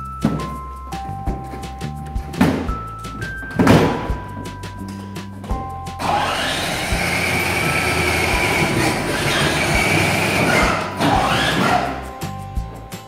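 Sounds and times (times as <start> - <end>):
toy truck motor whine: 6.0 - 12.0
plastic wheels rumbling: 6.0 - 12.1.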